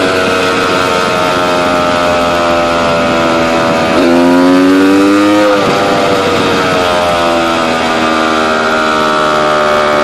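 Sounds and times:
two-stroke engine revving: 0.0s - 10.0s.

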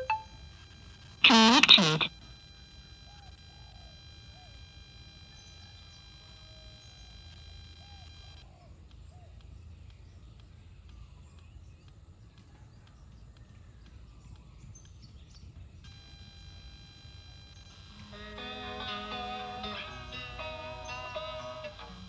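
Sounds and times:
steady high-pitched whine: 0.0s - 11.2s, 15.9s - 22.0s
faint bird chirps: 1.2s - 2.1s.

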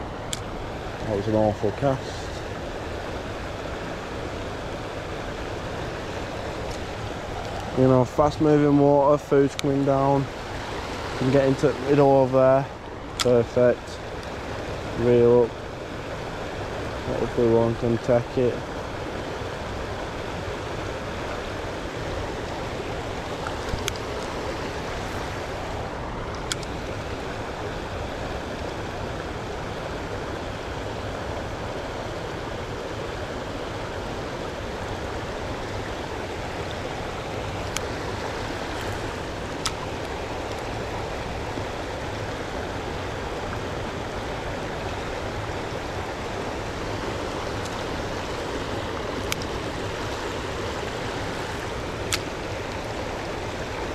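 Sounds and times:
river water rushing: 0.0s - 53.9s
faint sharp clicks: 26.3s - 27.0s, 37.6s - 37.9s, 47.6s - 47.9s, 49.2s - 49.5s, 52.0s - 52.8s.

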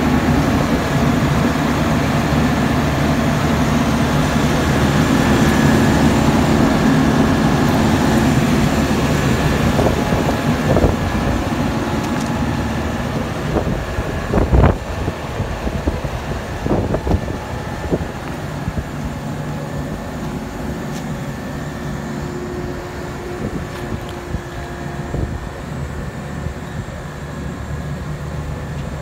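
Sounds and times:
diesel engine idling: 0.0s - 29.0s
wind thumps on microphone: 13.2s - 19.0s.

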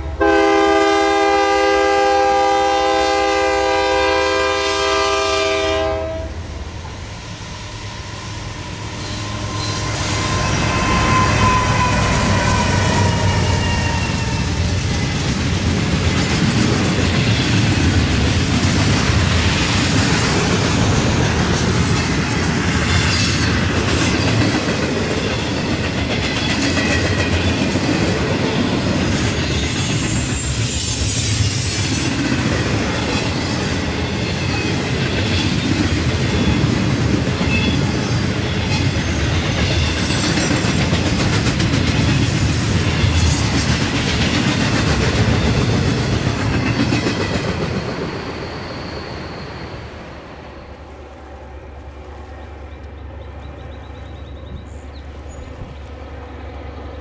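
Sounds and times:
freight train rumbling past: 0.0s - 57.0s
wheels clicking over rail joints: 14.8s - 30.7s.

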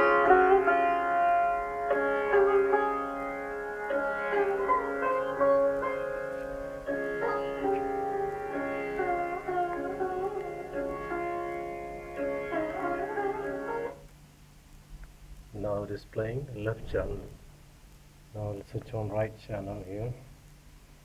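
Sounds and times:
instrumental music over loudspeakers: 0.0s - 14.0s.

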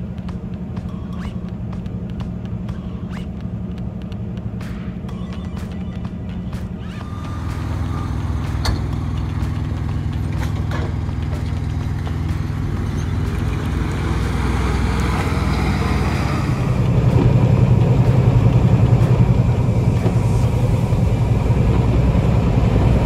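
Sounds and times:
diesel truck engine droning: 0.0s - 23.0s.

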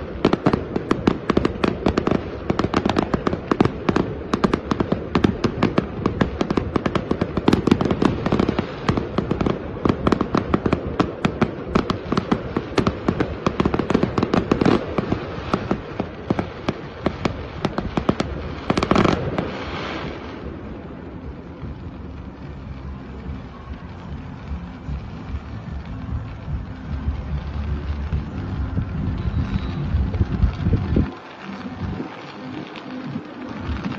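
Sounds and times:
fireworks bangs and crackles: 0.0s - 33.9s
loud firework burst: 0.0s - 33.9s
low steady rumble: 20.4s - 31.1s.

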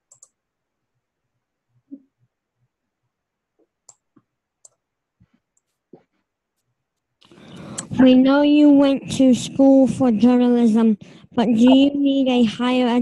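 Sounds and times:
faint computer clicks: 0.1s - 0.4s.

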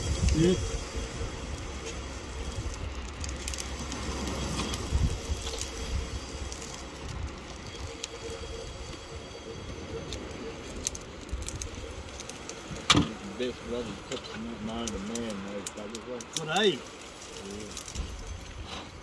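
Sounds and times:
wind buffeting microphone: 0.0s - 16.1s.

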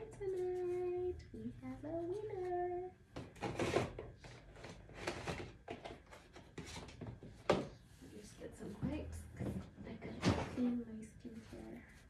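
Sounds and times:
paper and cardboard rustling: 3.4s - 8.3s.

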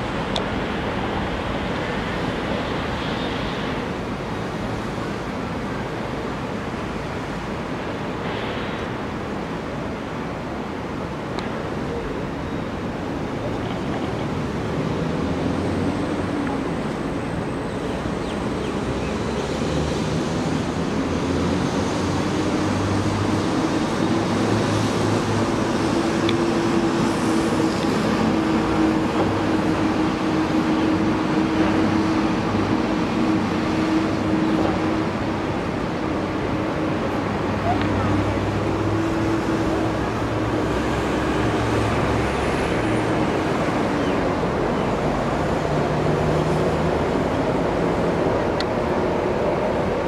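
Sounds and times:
wind noise hiss: 0.0s - 13.3s
aircraft engines rumbling: 0.0s - 50.0s.

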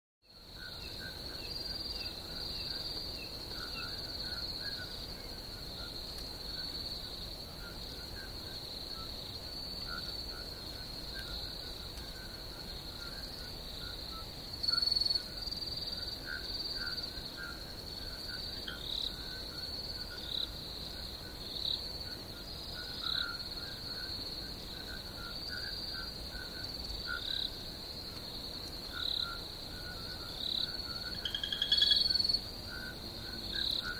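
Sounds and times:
insects chirring: 0.3s - 33.9s
loud insect call: 0.3s - 33.9s
low short insect chirps: 28.9s - 33.9s.

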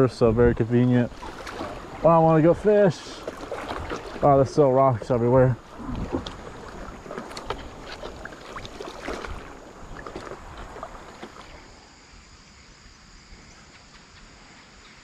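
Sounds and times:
paddle splashing in water: 0.6s - 11.8s.

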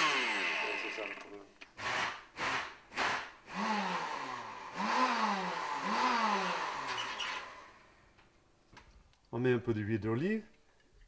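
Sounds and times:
blender chopping vegetables: 0.0s - 7.5s.

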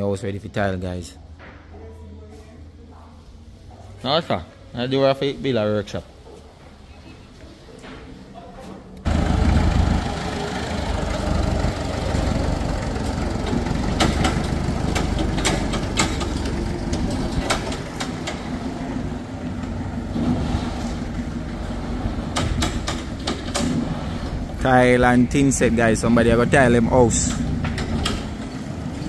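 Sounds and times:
forklift engine running: 9.0s - 29.0s
sharp metal knocks and clanks: 13.5s - 18.5s, 22.3s - 24.0s.

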